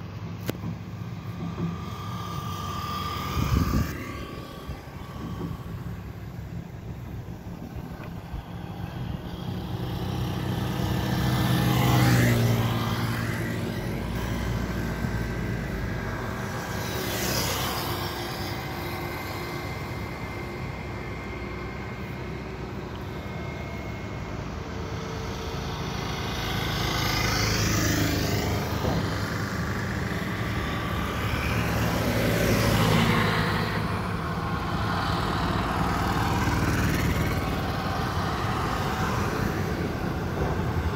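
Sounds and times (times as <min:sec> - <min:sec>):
motorcycles passing: 0:00.0 - 0:40.9
truck passing: 0:00.0 - 0:40.9.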